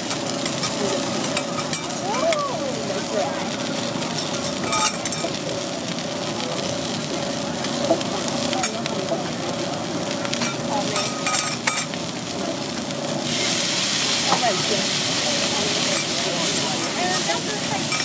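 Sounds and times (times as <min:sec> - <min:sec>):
meat sizzling on a griddle: 0:00.0 - 0:18.0
metal spatula scraping a griddle: 0:04.2 - 0:05.4, 0:10.4 - 0:11.9, 0:15.9 - 0:18.0.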